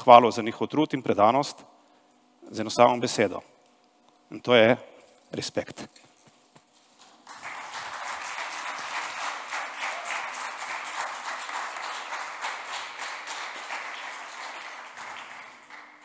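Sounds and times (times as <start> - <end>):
audience applauding: 7.1 - 16.0.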